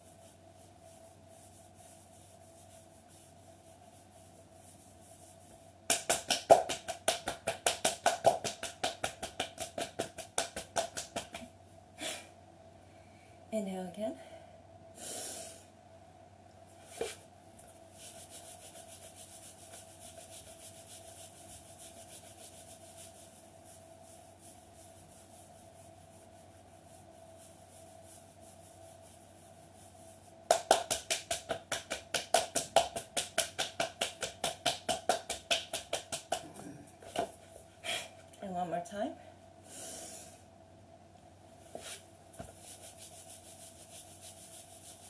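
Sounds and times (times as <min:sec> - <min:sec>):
hands rubbing on cloth leggings: 0:00.0 - 0:11.5, 0:16.8 - 0:37.8, 0:41.6 - 0:45.0.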